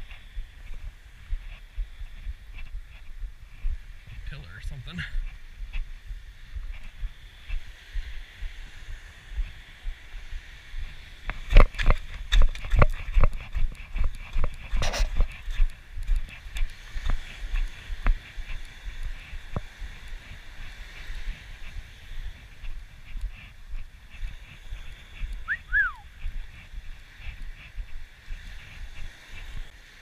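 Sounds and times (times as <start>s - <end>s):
wind rumble on microphone: 0.0s - 30.0s
footsteps crunching on pebbles: 10.8s - 30.0s.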